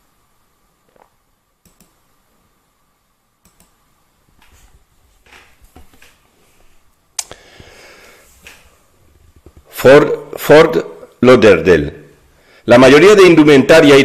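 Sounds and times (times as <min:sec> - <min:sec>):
computer mouse clicks: 0:00.9 - 0:02.0, 0:03.4 - 0:03.8.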